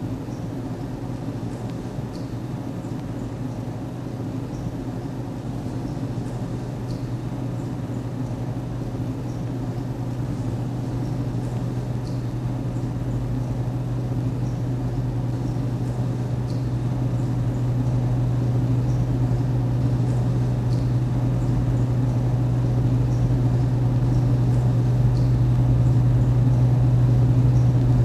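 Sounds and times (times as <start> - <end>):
low underwater hum: 0.0 - 28.0.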